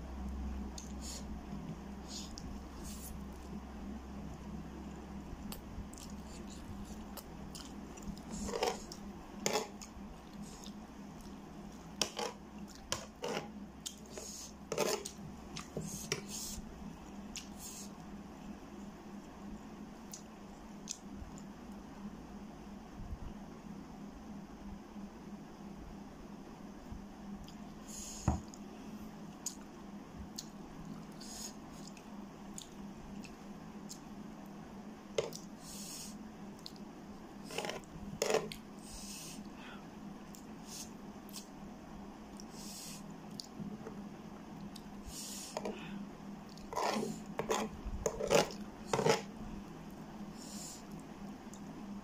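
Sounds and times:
steady low hum: 0.0s - 52.0s
wet mouth eating sounds: 5.4s - 14.1s, 36.6s - 36.9s
metal fork scraping a tray: 46.7s - 49.3s.

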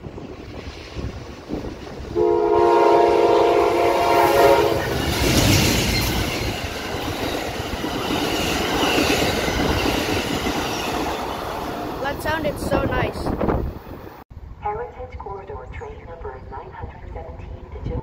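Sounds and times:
locomotive passing: 0.0s - 18.0s
locomotive horn chord: 2.2s - 4.9s.

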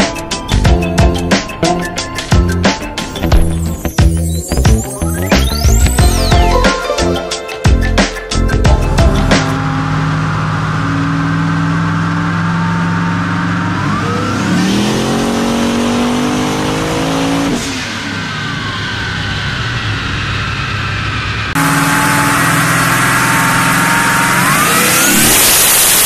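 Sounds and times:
car engine revving: 0.0s - 6.4s, 8.4s - 26.0s
turbo whine: 0.0s - 15.2s, 18.0s - 26.0s.

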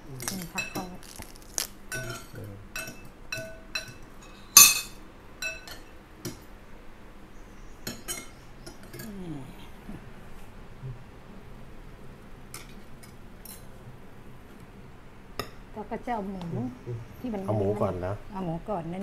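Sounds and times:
spoons clinking against dishes: 1.9s - 6.5s, 7.8s - 9.0s.

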